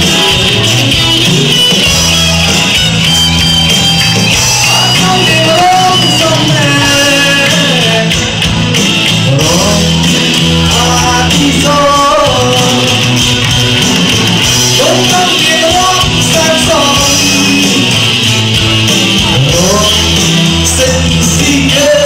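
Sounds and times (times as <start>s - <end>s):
drums: 0.0s - 22.0s
electric guitar: 0.0s - 22.0s
keyboards: 0.0s - 22.0s
person singing: 4.0s - 13.4s, 14.6s - 18.3s, 19.0s - 22.0s.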